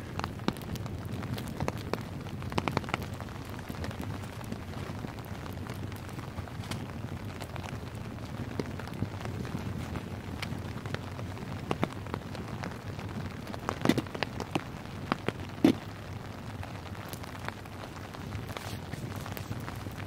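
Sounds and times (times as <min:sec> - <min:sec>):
rain pattering on a tarp: 0:00.0 - 0:20.0
sharp pops: 0:13.7 - 0:15.9.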